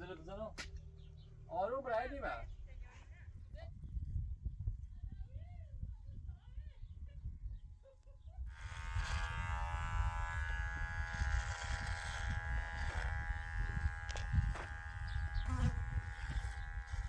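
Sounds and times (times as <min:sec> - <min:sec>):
small motor buzzing: 0:08.5 - 0:17.0.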